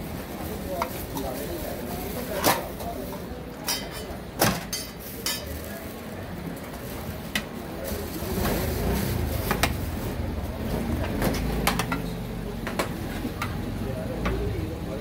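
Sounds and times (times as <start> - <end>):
metal utensils clinking on pot: 3.6 - 5.6.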